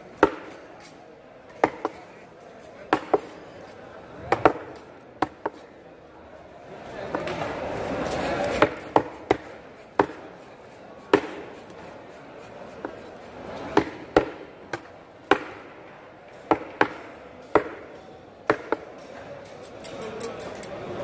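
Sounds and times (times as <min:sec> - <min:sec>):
knife chopping fish on wooden board: 0:08.6 - 0:10.3, 0:11.0 - 0:11.8, 0:13.8 - 0:15.6.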